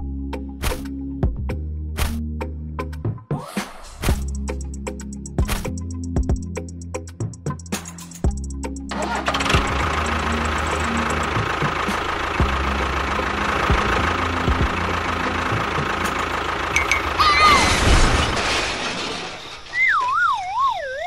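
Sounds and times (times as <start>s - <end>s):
small engine knocking: 8.9s - 17.2s
whistling glide: 19.4s - 21.0s
wobbling falling whistle: 19.4s - 21.0s.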